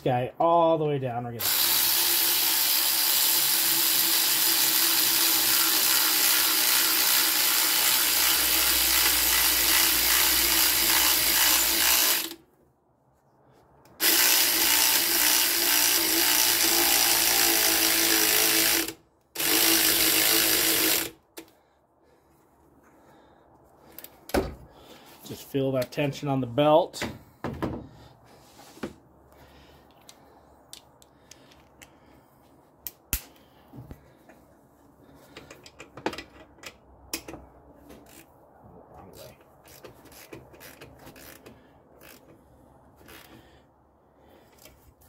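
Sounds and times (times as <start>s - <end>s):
electric ratchet motor whirring: 1.4s - 12.4s, 14.0s - 21.2s.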